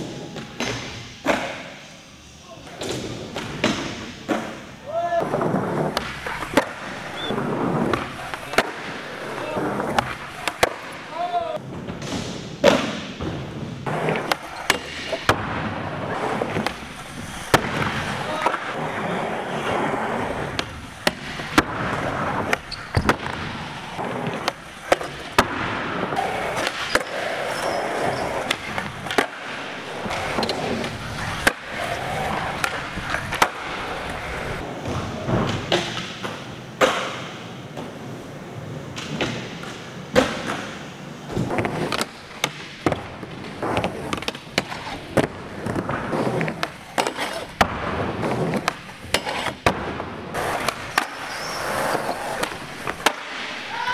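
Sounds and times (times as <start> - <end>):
skateboard wheels rolling: 0.0 - 53.9
skateboard clacks: 38.9 - 53.9.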